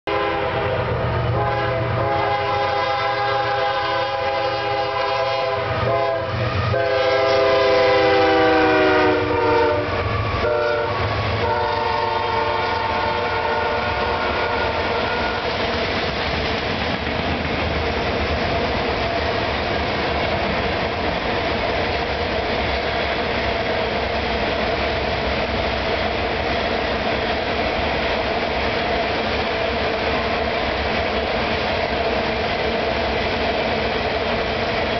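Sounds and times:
locomotive air horn blasts: 0.1s - 15.6s
train wheels rumbling on rails: 0.1s - 34.9s.

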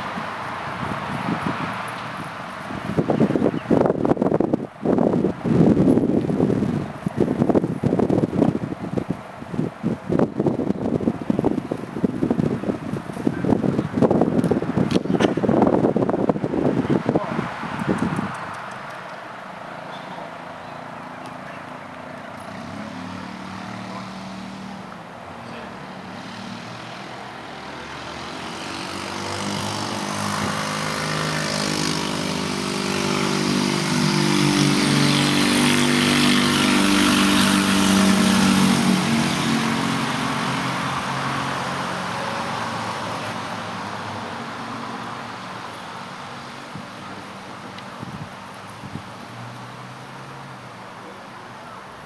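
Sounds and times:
passing engine drone: 16.6s - 52.0s.

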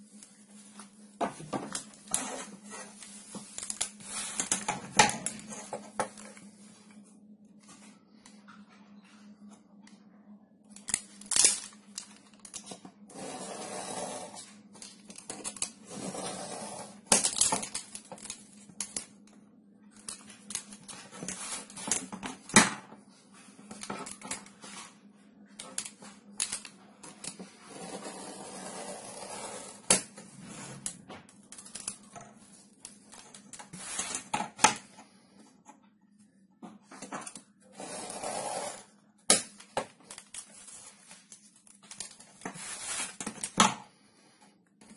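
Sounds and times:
knife scraping along ruler: 13.1s - 14.4s, 15.9s - 17.0s, 27.6s - 29.8s, 37.8s - 38.8s.

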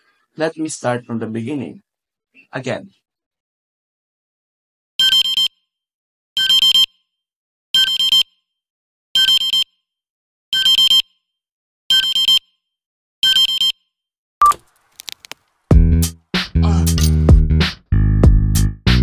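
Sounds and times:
phone alarm beeping: 5.0s - 5.6s, 6.4s - 6.9s, 7.8s - 8.4s, 9.2s - 9.8s, 10.6s - 11.1s, 11.9s - 12.5s, 13.2s - 13.8s.

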